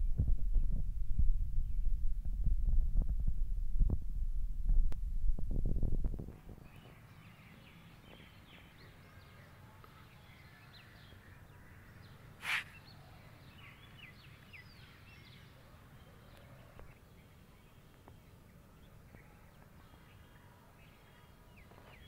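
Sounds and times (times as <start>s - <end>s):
low hum: 0.0s - 6.4s
small birds chirping: 6.4s - 22.0s.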